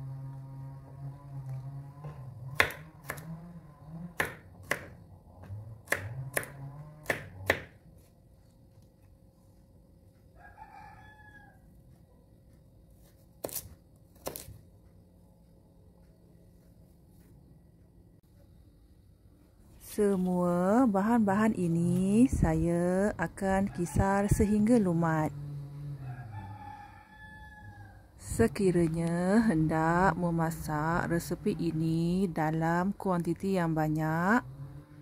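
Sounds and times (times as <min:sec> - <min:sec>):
rooster crowing: 0:10.3 - 0:11.8, 0:25.7 - 0:28.1.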